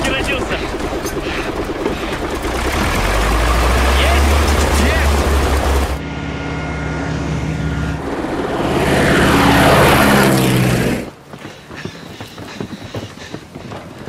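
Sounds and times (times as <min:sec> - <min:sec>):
heavy low rumble: 0:00.0 - 0:11.2
propeller plane engine drone: 0:00.0 - 0:14.0.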